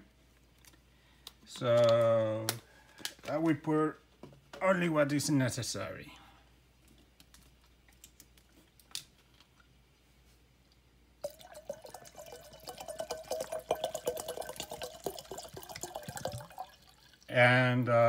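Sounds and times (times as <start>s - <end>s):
water glugging and splashing: 11.2s - 17.3s.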